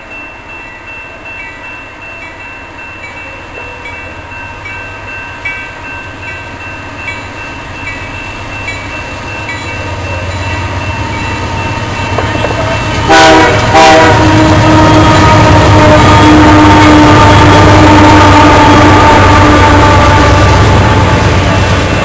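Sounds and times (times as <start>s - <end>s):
level crossing warning bell: 0.0s - 14.6s
locomotive rumble: 2.2s - 22.0s
locomotive horn blasts: 12.1s - 21.4s.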